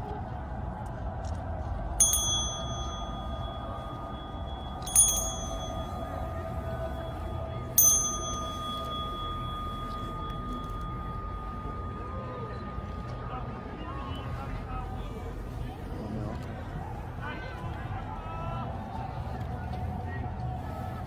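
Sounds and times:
small handbell ringing: 2.0 - 13.3.

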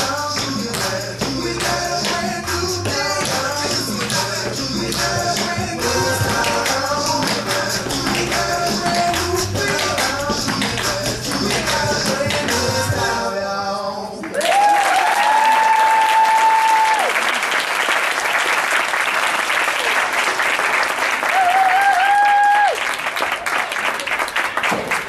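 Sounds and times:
audience applause and cheering: 14.2 - 25.0
long held whoops: 14.3 - 17.2, 21.2 - 22.8.

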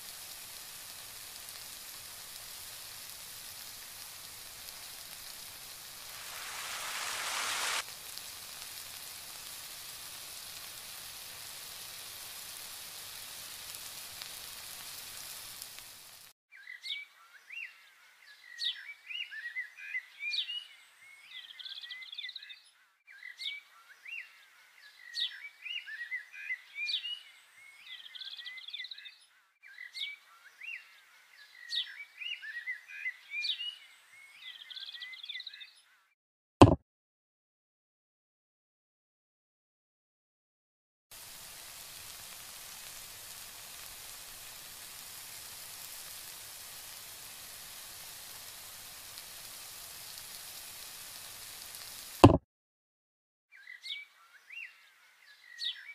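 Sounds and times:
sauce sizzling in a wok: 0.0 - 16.4, 41.1 - 52.4
birds chirping: 5.9 - 7.8.

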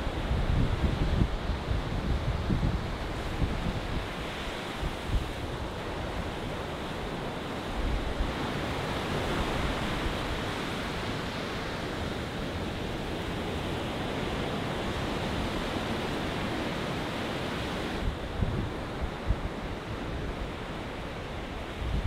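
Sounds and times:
wind bumps on microphone: 0.0 - 6.1, 17.5 - 20.5, 21.4 - 22.0
ocean waves breaking on beach: 0.0 - 22.0.

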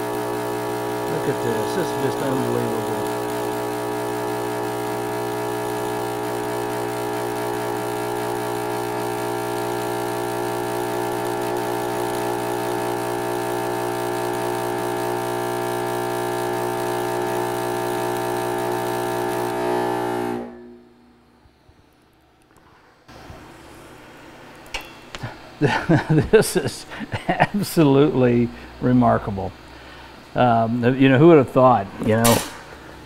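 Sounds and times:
welding arc buzzing with hiss: 0.0 - 22.2, 32.1 - 33.0.

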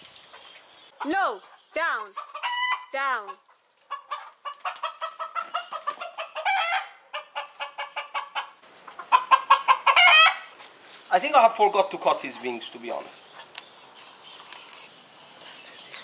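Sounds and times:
rooster clucking: 0.9 - 10.6
rooster squawks: 3.9 - 8.5, 9.1 - 10.5.

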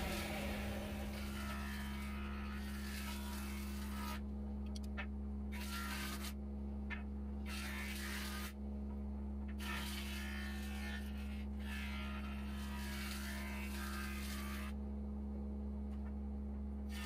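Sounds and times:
lathe motor humming: 0.0 - 2.1
chisel cutting spinning wood: 0.0 - 4.2.

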